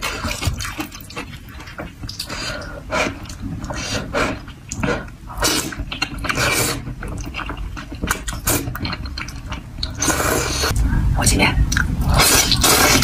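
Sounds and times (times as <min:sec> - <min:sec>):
wet chewing: 0:00.0 - 0:10.8, 0:11.7 - 0:13.0
person slurping noodles: 0:02.2 - 0:07.3, 0:07.9 - 0:08.8, 0:09.8 - 0:10.7, 0:12.0 - 0:13.0.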